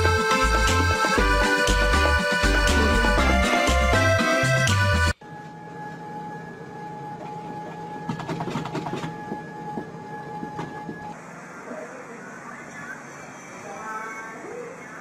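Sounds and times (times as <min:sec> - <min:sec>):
treadmill motor whine and belt hum: 0:05.1 - 0:15.0.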